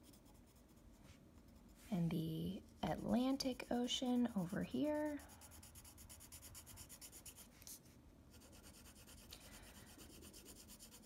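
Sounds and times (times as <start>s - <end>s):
pencil scratching on paper: 2.7s - 7.7s, 8.3s - 11.0s.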